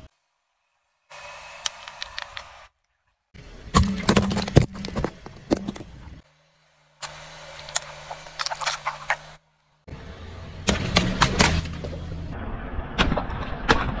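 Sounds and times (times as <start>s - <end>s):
water balloons popping: 3.7s - 6.0s
water splashing: 3.7s - 6.1s.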